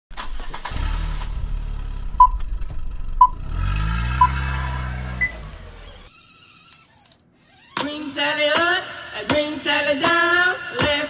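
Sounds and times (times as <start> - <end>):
car engine starting and revving: 0.1 - 6.1.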